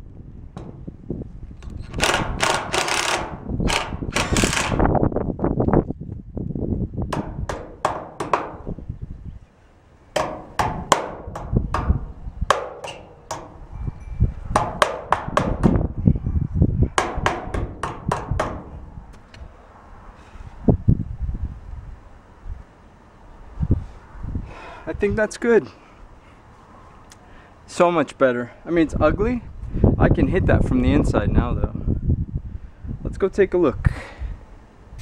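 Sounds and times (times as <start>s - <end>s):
cordless impact driver bursts: 2.0s - 4.8s
hammer blows on sheet steel: 14.5s - 15.9s, 16.9s - 18.8s.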